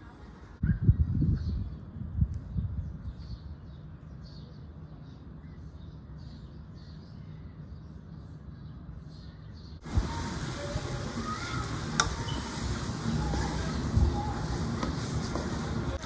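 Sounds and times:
birds calling: 0:08.7 - 0:16.0.

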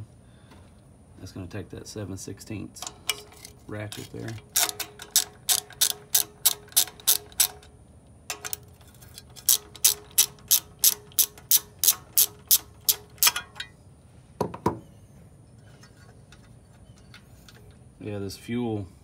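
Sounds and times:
hand ratchet clicking: 0:02.8 - 0:07.7, 0:08.3 - 0:13.7.

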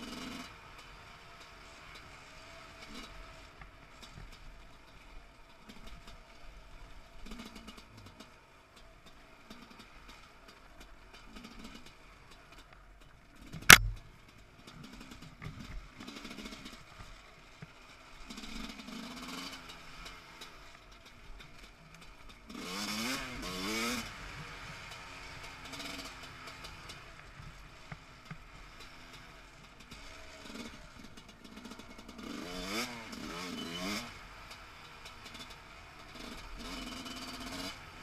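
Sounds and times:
motorcycle engine idling: 0:08.0 - 0:16.0
loud sharp knock: 0:13.7 - 0:14.0.

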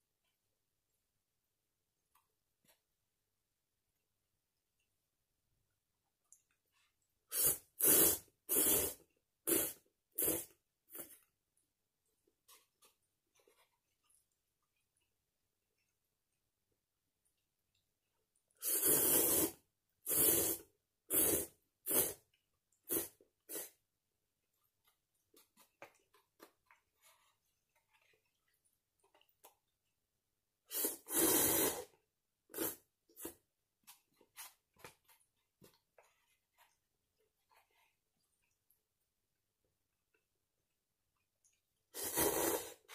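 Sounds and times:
noodle slurping: 0:07.3 - 0:11.3, 0:18.6 - 0:23.8, 0:30.7 - 0:36.8, 0:41.9 - 0:42.9.

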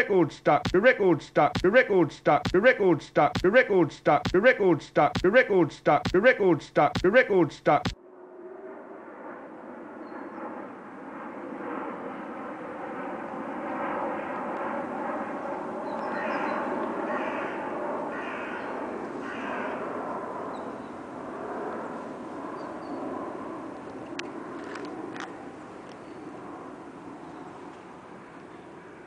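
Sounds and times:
short calls: 0:00.0 - 0:08.0.

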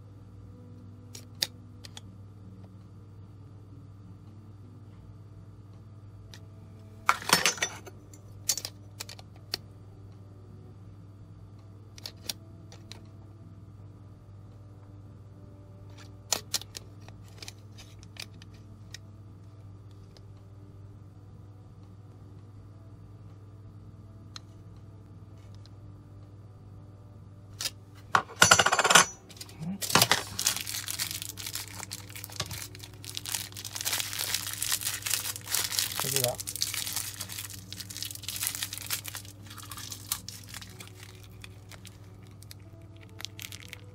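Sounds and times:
steady low hum: 0:00.0 - 0:43.9
small objects rustling and clicking: 0:29.3 - 0:43.9.

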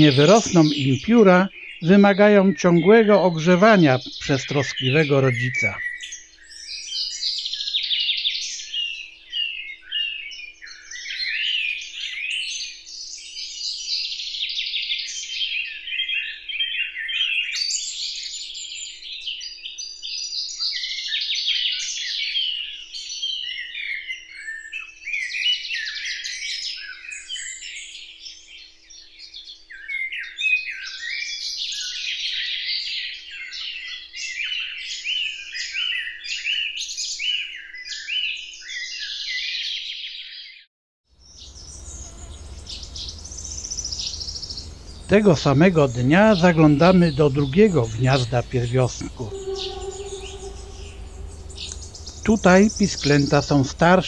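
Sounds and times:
songbirds singing and chirping: 0:00.0 - 0:14.4, 0:41.2 - 0:54.0.

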